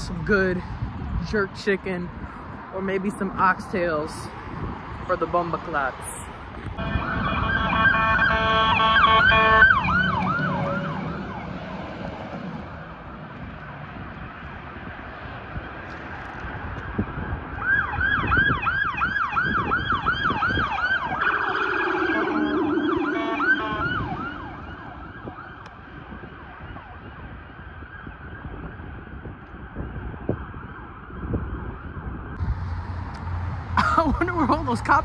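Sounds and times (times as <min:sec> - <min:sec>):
fast yelp siren: 0:06.8 - 0:11.6, 0:17.6 - 0:29.1
police siren: 0:06.8 - 0:12.4, 0:16.5 - 0:33.4.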